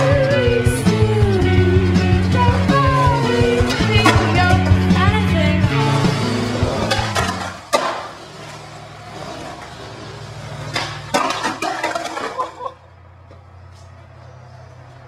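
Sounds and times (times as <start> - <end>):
skateboard wheels rolling on concrete: 0.0 - 15.0
skateboard clacks and knocks: 3.5 - 5.1, 6.4 - 15.0.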